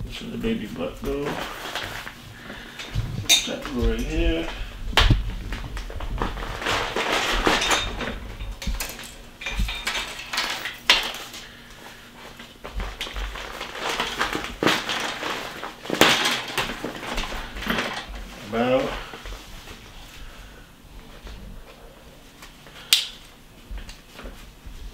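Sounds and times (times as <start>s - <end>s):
fabric rustling: 0.7s - 8.7s, 11.2s - 22.6s.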